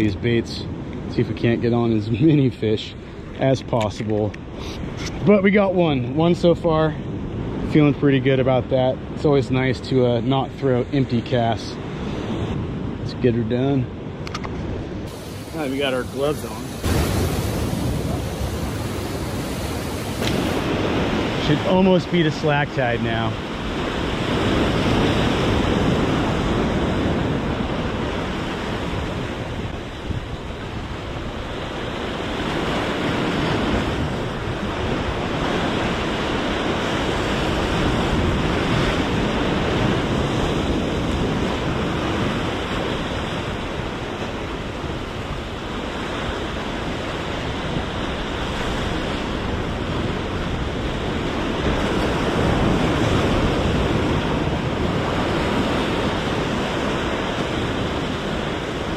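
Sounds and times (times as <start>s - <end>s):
surf breaking over rocks: 15.0s - 30.2s.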